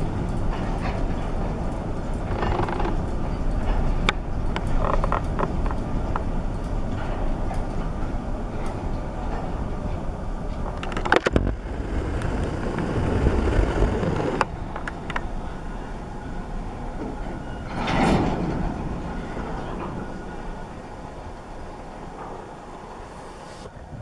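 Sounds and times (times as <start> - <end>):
rush of noise: 0.0 - 24.0
train wheels rumbling on rails: 0.0 - 24.0
metallic clanks: 14.4 - 23.1.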